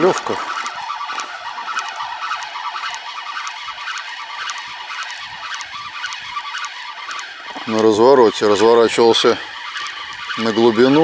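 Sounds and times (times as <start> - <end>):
fishing reel whirring: 0.0 - 11.0.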